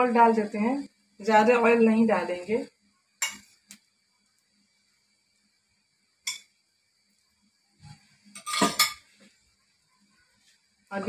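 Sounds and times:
metal spoon clinking on cookware: 0:03.2 - 0:03.5, 0:06.2 - 0:06.5, 0:08.3 - 0:09.1
spoon clattering: 0:03.2 - 0:03.5, 0:06.2 - 0:06.5, 0:08.3 - 0:09.1.

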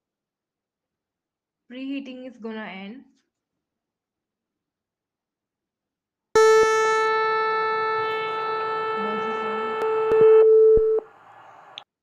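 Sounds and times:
electronic buzzer tone: 0:06.4 - 0:11.0.

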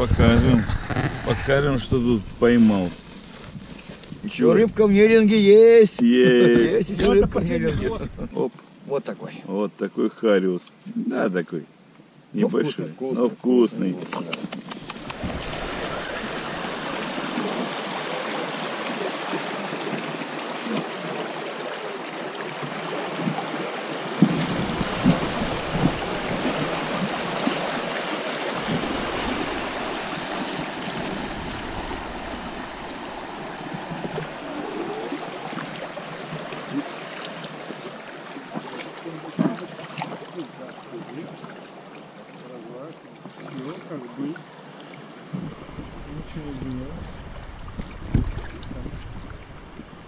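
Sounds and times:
water rushing over rocks: 0:14.2 - 0:50.0
dull low knocks: 0:45.3 - 0:50.0.

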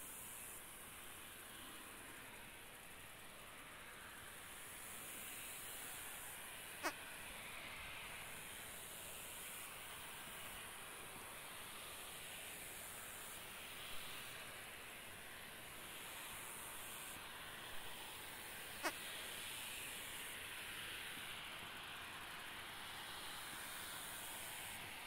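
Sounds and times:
jet engines idling hiss: 0:00.0 - 0:25.0.

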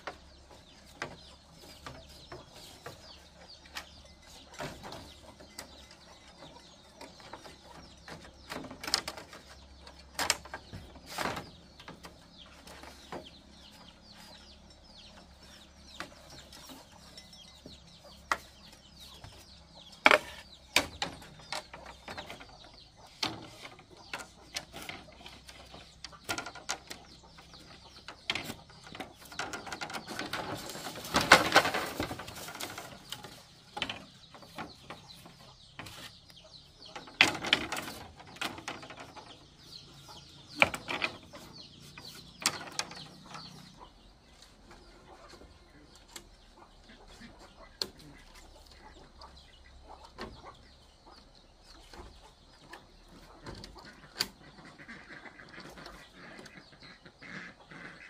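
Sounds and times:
birds chirping faintly: 0:00.0 - 0:58.0
rustling: 0:28.4 - 0:36.3.

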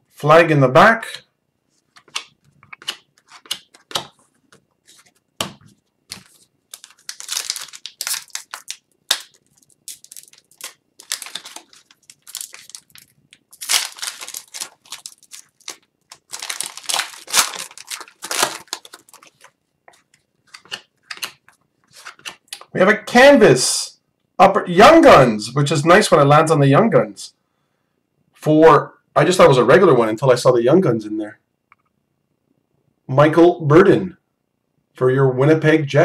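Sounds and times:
cards clicking: 0:01.9 - 0:22.7
wrapper tearing and crinkling: 0:06.1 - 0:19.6.

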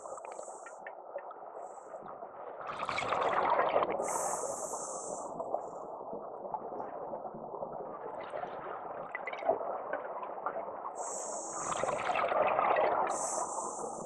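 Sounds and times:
underwater bubbles and gurgling: 0:00.0 - 0:14.0
regulator hiss: 0:04.0 - 0:05.3, 0:11.0 - 0:12.0, 0:13.1 - 0:14.0.

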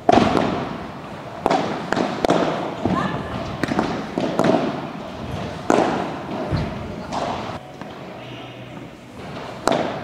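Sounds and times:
racket striking ball: 0:00.0 - 0:00.8, 0:01.4 - 0:07.9, 0:09.4 - 0:10.0.

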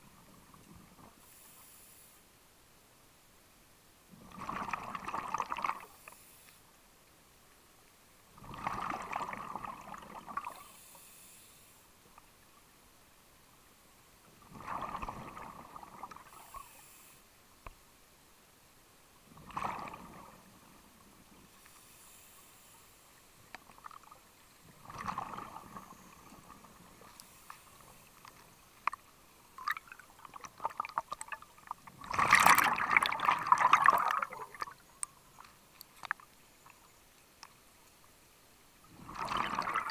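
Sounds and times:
regulator bubbles gurgling underwater: 0:04.1 - 0:06.0, 0:08.4 - 0:10.7, 0:14.4 - 0:16.4, 0:19.3 - 0:20.8, 0:23.7 - 0:35.0, 0:38.8 - 0:39.9
faint ticks: 0:05.8 - 0:08.0, 0:10.5 - 0:12.7, 0:16.3 - 0:17.9, 0:21.5 - 0:24.6, 0:25.8 - 0:31.8, 0:34.6 - 0:38.2.

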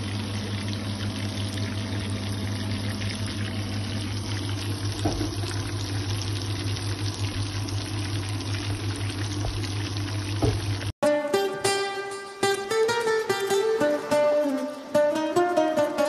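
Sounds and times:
fish deep-frying in oil: 0:00.0 - 0:11.0
plucked-string music: 0:11.0 - 0:16.0.

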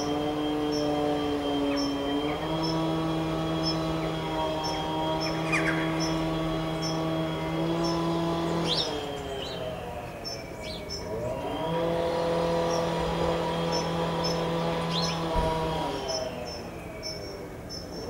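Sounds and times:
engine hum: 0:00.0 - 0:18.0
small birds chirping: 0:00.0 - 0:18.0.

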